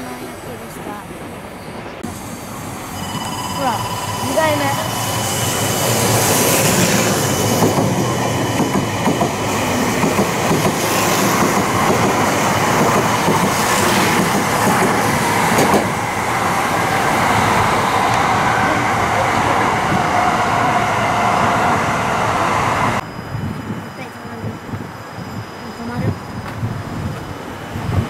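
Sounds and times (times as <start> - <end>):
faint train whine: 0.0 - 28.0
train wheels on rails: 0.0 - 28.0.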